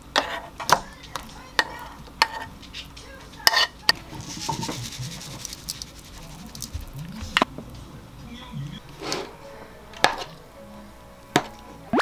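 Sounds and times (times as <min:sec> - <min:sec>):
utensils scraping frying pan: 0:00.0 - 0:06.7, 0:08.9 - 0:09.4
sesame seeds rattling: 0:04.0 - 0:07.3.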